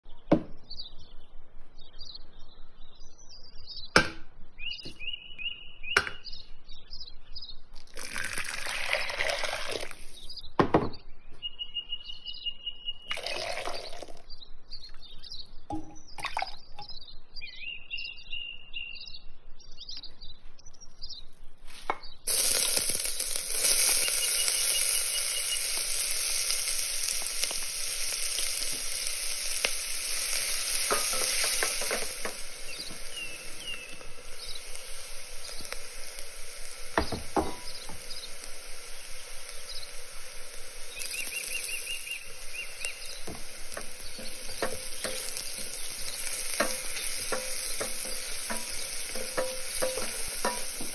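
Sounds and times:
water poured into glass bowl: 7.8 - 10.2, 13.1 - 14.3, 15.7 - 16.7
onion sizzling in oil: 7.8 - 10.4, 13.1 - 14.2, 21.6 - 50.9
faint high chirps: 23.5 - 27.6.

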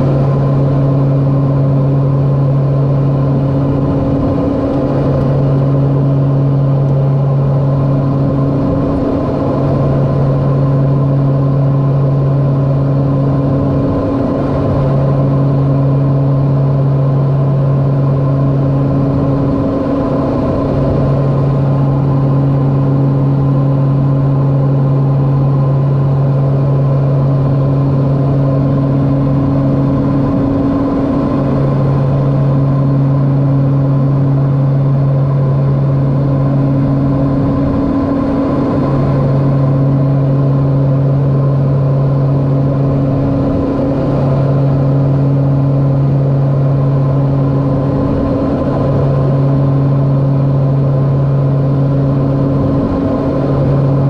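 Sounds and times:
turboprop engines droning: 0.0 - 54.0.

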